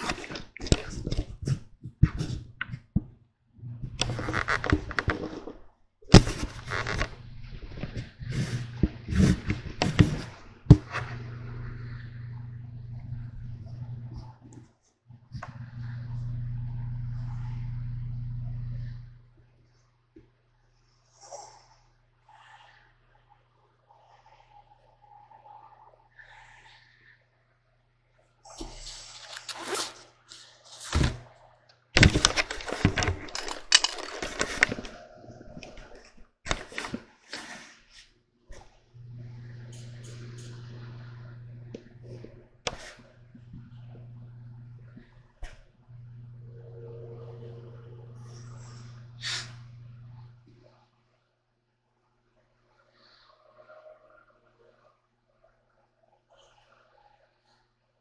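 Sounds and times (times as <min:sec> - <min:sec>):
crackling handling noise: 0:00.0 - 0:03.1, 0:03.7 - 0:12.6, 0:28.6 - 0:31.3, 0:32.0 - 0:37.6
rustling and scraping: 0:00.0 - 0:11.3, 0:32.0 - 0:38.6
steady low hum: 0:06.1 - 0:19.6, 0:38.9 - 0:50.6.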